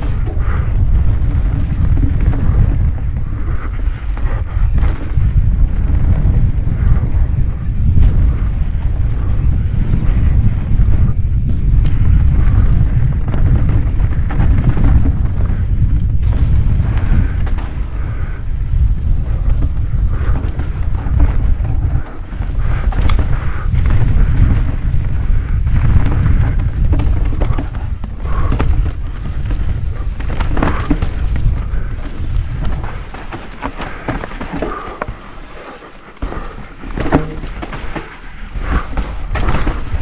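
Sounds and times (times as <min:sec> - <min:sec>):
wind buffeting microphone: 0:00.0 - 0:40.0
bike clattering over rocks: 0:19.3 - 0:40.0.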